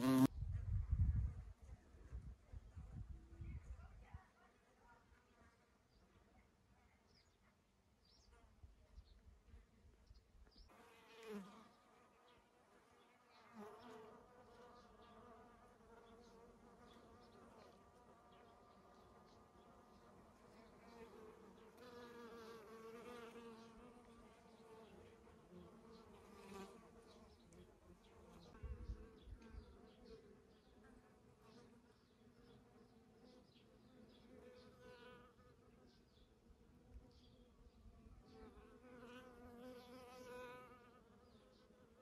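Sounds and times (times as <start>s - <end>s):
flying insect buzzing: 0.0s - 0.3s.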